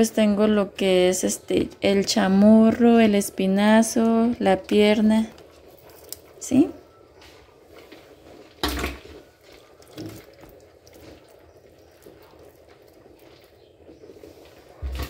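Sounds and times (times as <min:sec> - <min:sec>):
kitchen water running: 0:08.6 - 0:13.8.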